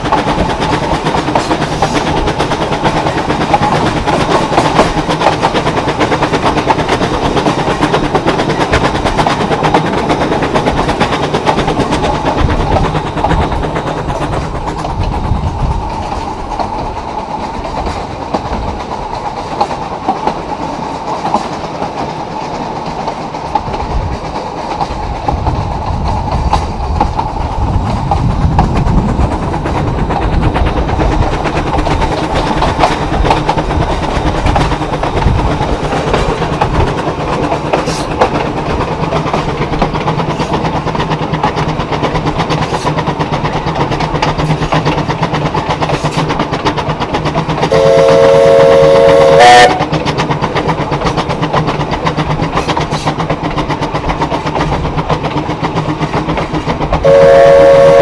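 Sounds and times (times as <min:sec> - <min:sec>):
rail clatter: 0:00.0 - 0:58.0
steam locomotive rumbling: 0:00.0 - 0:58.0
steam whistle blast: 0:47.7 - 0:49.8, 0:57.0 - 0:58.0.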